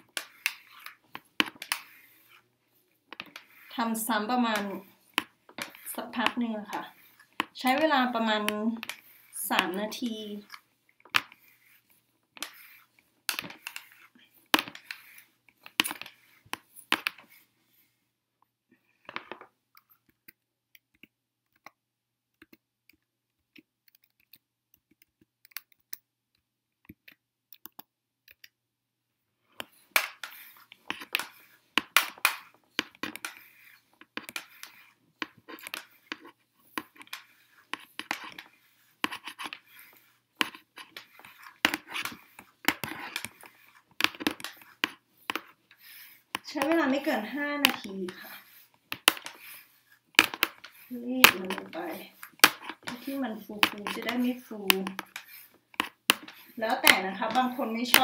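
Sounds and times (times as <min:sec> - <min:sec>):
flat iron rustling on hair: 0:00.0 - 0:18.2, 0:29.4 - 0:58.0.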